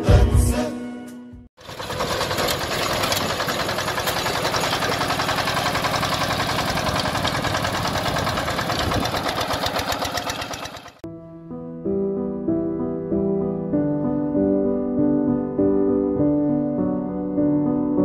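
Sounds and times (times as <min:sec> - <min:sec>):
power tiller engine running: 0:01.6 - 0:11.0
soft piano music: 0:11.0 - 0:18.0.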